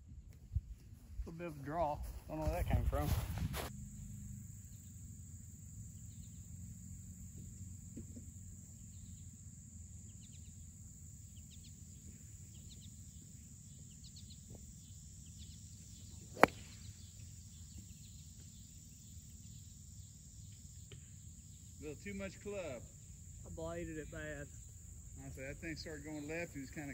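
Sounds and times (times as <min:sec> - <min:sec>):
faint chirping: 0:03.7 - 0:26.9
golf club striking ball: 0:16.3 - 0:17.1.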